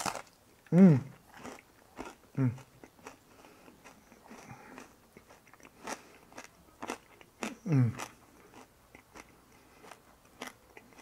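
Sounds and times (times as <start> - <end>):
person chewing crispy food: 0.0 - 11.0
person humming mm: 0.7 - 1.2, 2.4 - 2.6, 7.6 - 8.1.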